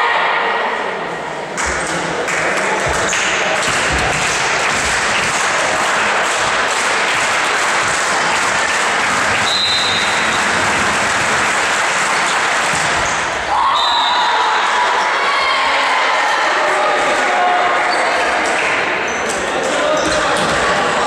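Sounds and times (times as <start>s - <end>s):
crowd clapping: 1.6s - 13.5s, 16.9s - 19.1s
referee's whistle: 9.4s - 10.4s, 13.7s - 14.4s.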